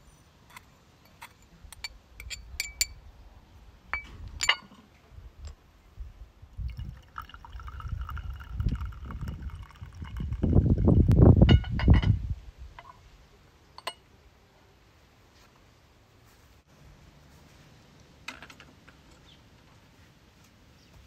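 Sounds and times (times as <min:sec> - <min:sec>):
porcelain clinking: 0:01.1 - 0:03.0, 0:04.0 - 0:04.8, 0:13.8 - 0:14.0
liquid pouring into bowl: 0:06.6 - 0:11.0.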